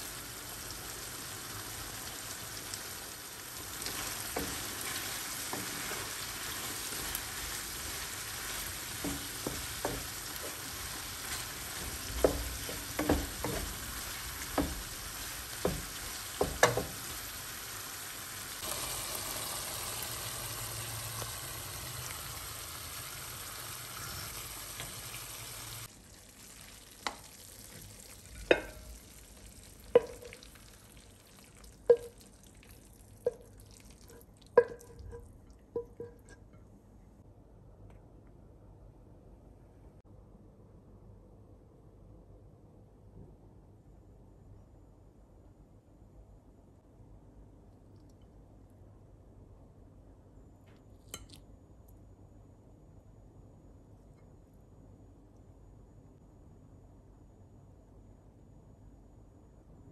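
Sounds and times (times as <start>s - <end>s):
food sizzling in a frying pan: 0.0s - 35.2s
wooden spatula knocking on pan: 8.9s - 17.2s, 28.4s - 28.9s, 29.9s - 30.5s, 31.9s - 32.2s, 34.6s - 35.2s.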